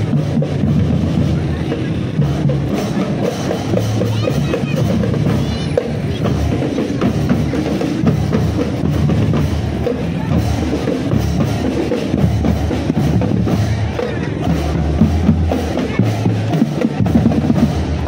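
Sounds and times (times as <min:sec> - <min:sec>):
bass drums beating: 0:00.0 - 0:18.0
marching drum band playing: 0:00.0 - 0:18.0
snare drums beating: 0:00.0 - 0:18.0.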